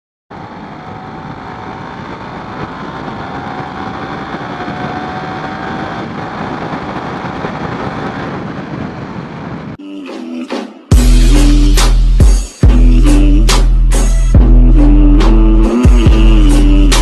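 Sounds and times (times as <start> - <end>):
faint motorcycle engine whine: 0.3 - 9.5
wind noise on microphone: 0.4 - 9.8.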